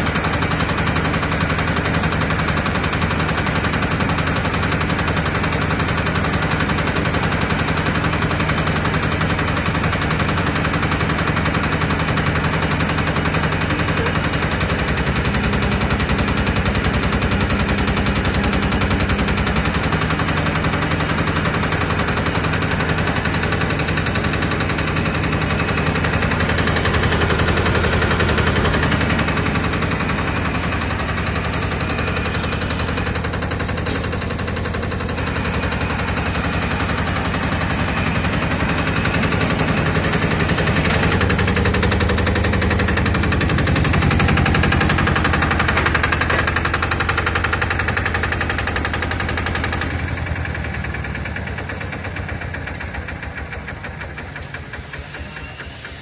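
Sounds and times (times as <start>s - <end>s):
small diesel engine knocking: 0.0s - 56.0s.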